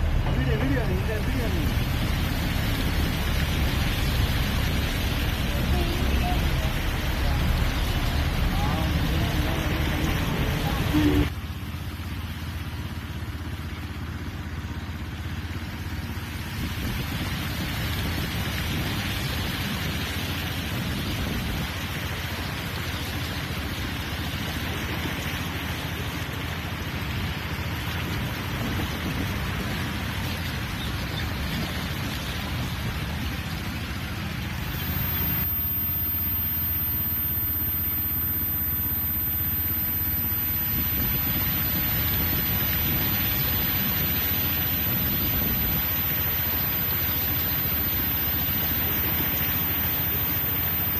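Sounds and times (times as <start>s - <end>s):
water rushing over road: 0.0s - 14.5s, 15.4s - 34.6s
rain: 0.0s - 14.8s, 15.5s - 35.2s
vehicle engines running: 0.0s - 17.6s
traffic driving through floodwater: 0.0s - 34.6s.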